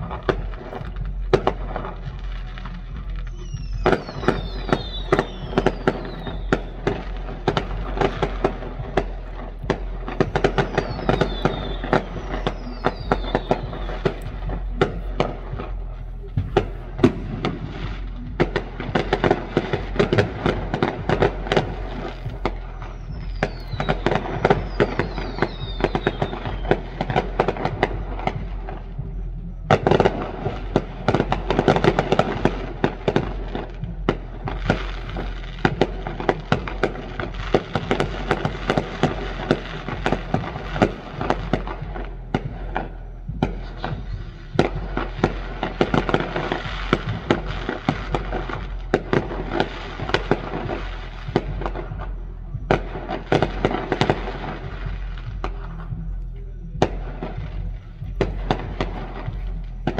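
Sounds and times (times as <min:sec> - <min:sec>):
fireworks bangs and crackling: 0:00.0 - 0:59.9
falling firework whistles: 0:03.2 - 0:29.1.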